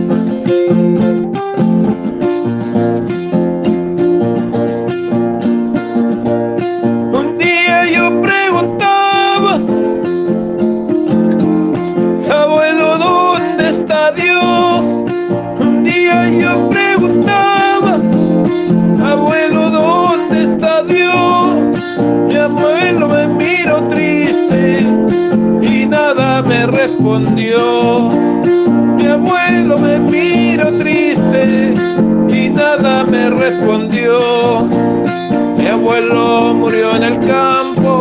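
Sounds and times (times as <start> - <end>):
acoustic guitar strumming: 0.0 - 38.0.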